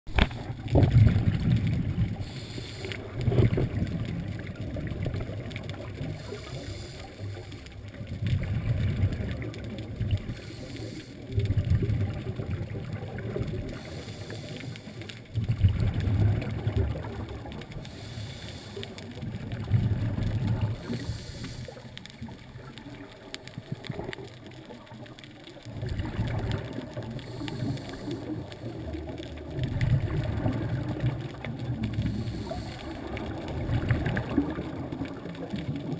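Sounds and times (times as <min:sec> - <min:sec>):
bubbling exhale underwater: 0:00.2 - 0:35.9
regulator inhale hiss: 0:02.1 - 0:03.6, 0:06.0 - 0:07.9, 0:10.2 - 0:11.5, 0:13.6 - 0:15.3, 0:17.8 - 0:22.3, 0:26.8 - 0:29.2, 0:31.9 - 0:33.5.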